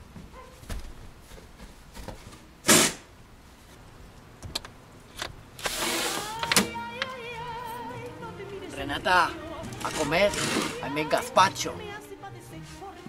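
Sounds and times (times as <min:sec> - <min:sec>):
short loud burst of noise: 0:02.6 - 0:03.1.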